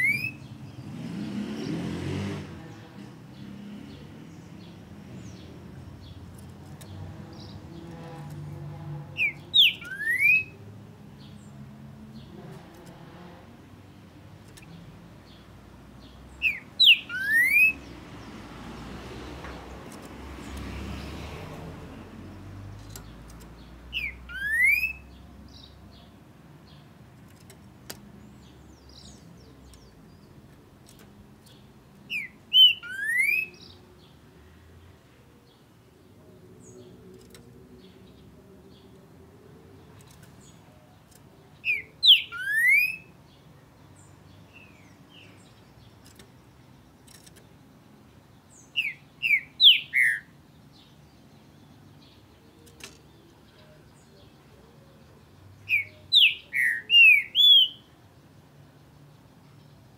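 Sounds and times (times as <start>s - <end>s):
bird singing whistled phrases: 0.0s - 0.4s, 9.2s - 10.6s, 16.4s - 17.8s, 23.9s - 25.1s, 32.1s - 33.6s, 41.6s - 43.1s, 48.7s - 50.3s, 55.7s - 57.9s.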